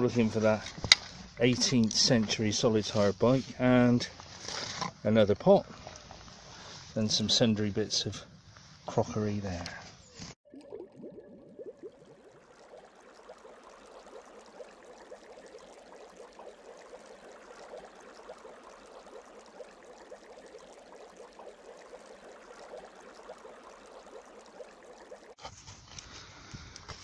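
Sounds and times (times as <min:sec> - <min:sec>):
bubbling fizzing water: 0:10.4 - 0:25.4.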